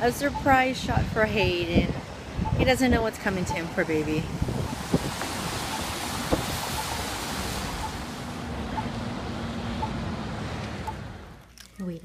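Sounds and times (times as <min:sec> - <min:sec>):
wind on microphone: 0:00.0 - 0:08.2
car passing: 0:03.5 - 0:11.4.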